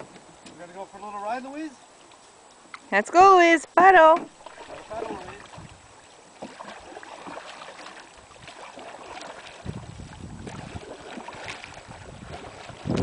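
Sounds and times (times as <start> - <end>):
paddles splashing in water: 1.9 - 13.0
wind rumbling on microphone: 4.4 - 13.0.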